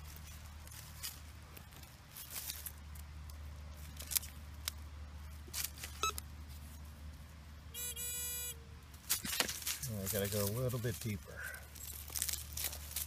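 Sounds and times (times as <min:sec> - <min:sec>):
pinpointer beeping: 0:07.8 - 0:08.6
scraping in dirt: 0:09.0 - 0:13.0.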